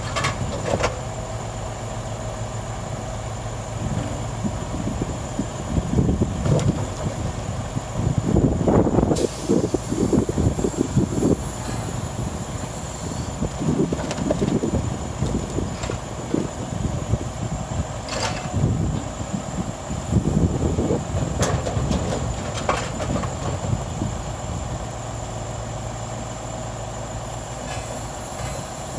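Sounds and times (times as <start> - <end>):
truck engine rumbling: 0.0 - 28.9.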